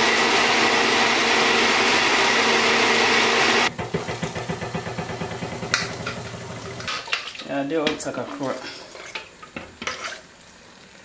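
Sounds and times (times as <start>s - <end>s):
blender running: 0.0s - 6.9s.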